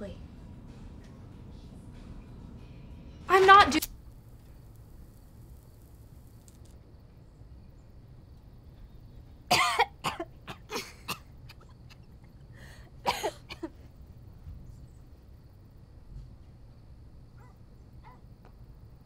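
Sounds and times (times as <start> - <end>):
woman coughing: 9.5 - 12.0, 13.0 - 13.7.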